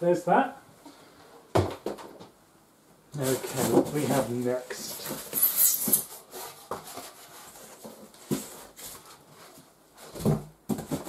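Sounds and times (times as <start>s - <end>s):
polystyrene pieces scraping: 3.2s - 7.7s.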